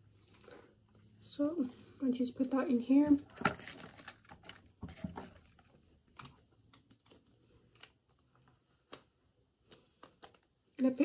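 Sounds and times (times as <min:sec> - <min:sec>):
faint plastic clicks and taps: 0:06.1 - 0:10.8.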